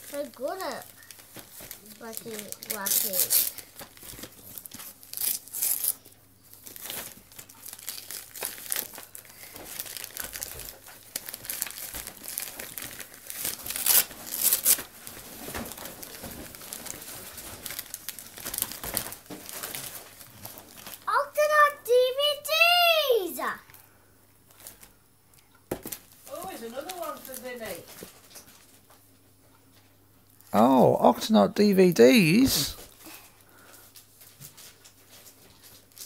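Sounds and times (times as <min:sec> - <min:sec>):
wrapping paper crinkling and tearing: 0:00.0 - 0:21.6, 0:25.9 - 0:28.9, 0:32.3 - 0:36.0.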